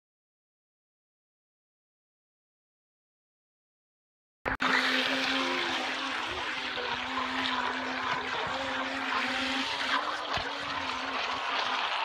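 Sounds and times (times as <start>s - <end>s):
electric motor whine: 4.5s - 12.0s
water spray splashing: 4.6s - 12.0s.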